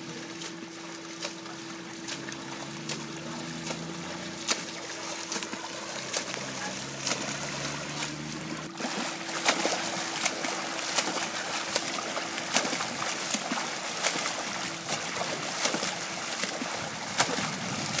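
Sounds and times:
churned water washing: 0.0s - 18.0s
faint steady hum: 0.0s - 18.0s
swimmer's arms splashing: 0.0s - 18.0s.

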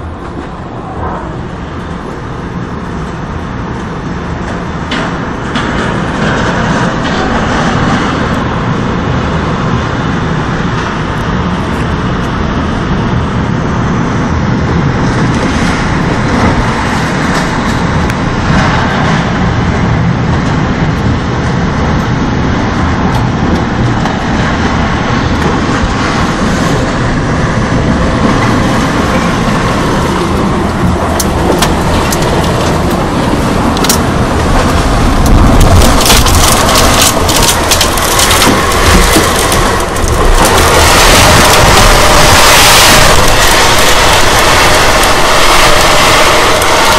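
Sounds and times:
driving rain: 0.0s - 46.9s
tornado wind: 0.0s - 46.9s.

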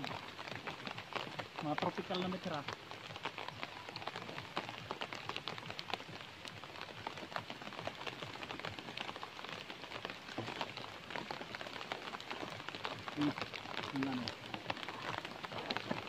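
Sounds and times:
rain on leaves and ground: 0.0s - 16.0s.

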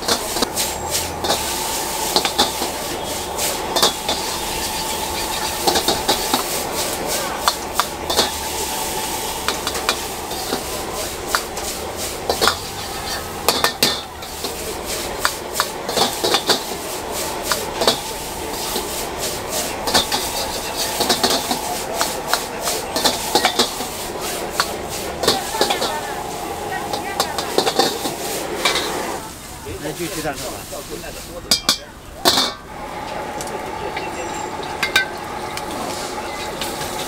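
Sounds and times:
metal ladle scraping a wok: 0.0s - 29.3s
noodles sizzling: 0.0s - 37.0s.

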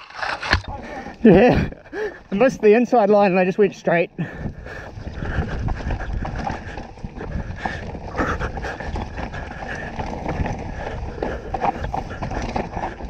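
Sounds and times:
bike tyres on dirt and rock: 0.0s - 13.0s
bike knocking and rattling: 4.2s - 13.0s.

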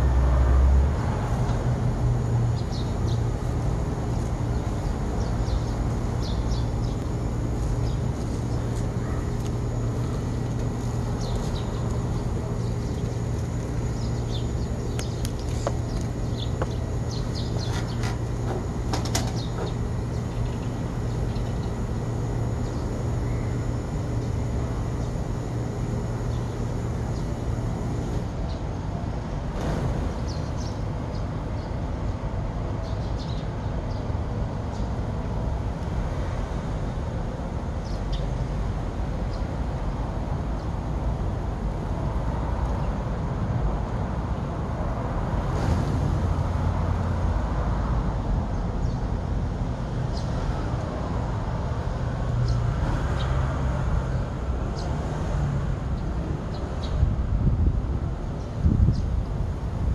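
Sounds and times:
low rumble of street noise: 0.0s - 59.9s
sparrows chirping: 2.2s - 28.9s, 30.1s - 32.2s, 32.8s - 35.0s, 37.8s - 38.4s, 48.5s - 49.1s, 50.1s - 50.7s, 52.4s - 53.4s, 54.2s - 55.0s, 56.0s - 57.0s, 58.4s - 59.4s.

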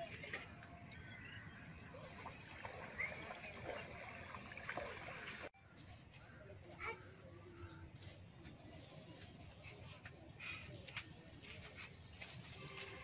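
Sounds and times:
water sloshing from wading: 1.1s - 5.5s.

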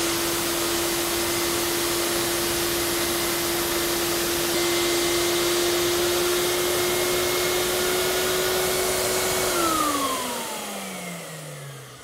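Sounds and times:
vacuum motor humming: 0.0s - 12.0s.

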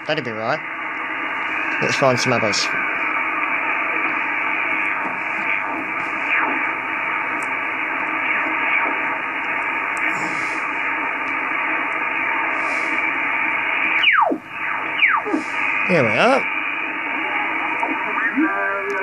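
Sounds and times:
faint radio tones: 0.0s - 19.0s
radio static hiss: 0.0s - 19.0s.

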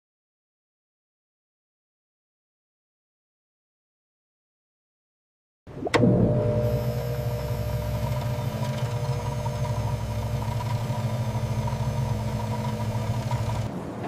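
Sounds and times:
stirrer motor humming: 5.9s - 13.7s.

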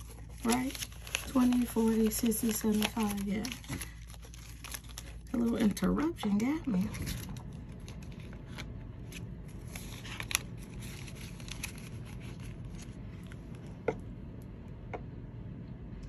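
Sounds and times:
plastic pouches crinkling: 0.0s - 8.6s
banknotes rustling: 0.0s - 13.4s.

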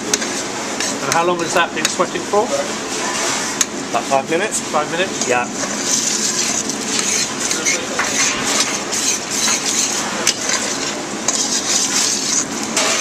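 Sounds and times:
metal spoon scraping saucepan: 5.7s - 13.0s.

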